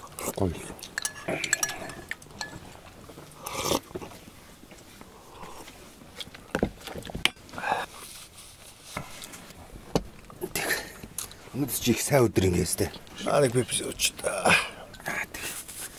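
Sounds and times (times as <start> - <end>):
people chewing and biting: 0.0 - 4.3, 4.9 - 8.0
spoons clicking against bowls: 0.8 - 2.6.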